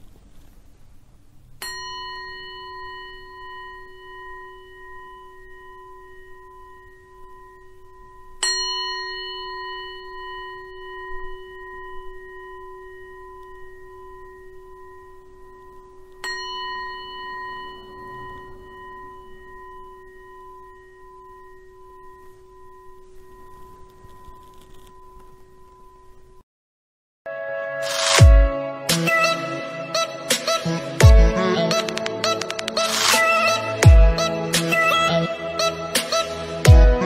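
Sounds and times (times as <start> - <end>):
singing bowl ringing: 1.6 - 26.4.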